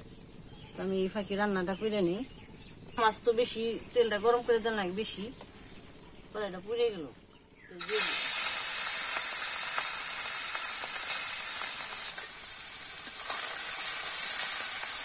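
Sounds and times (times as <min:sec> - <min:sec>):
fish sizzling in hot oil: 0:07.8 - 0:15.0.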